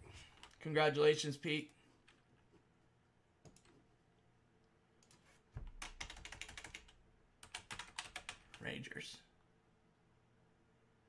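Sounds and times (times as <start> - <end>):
typing on computer keyboard: 5.0 - 8.7.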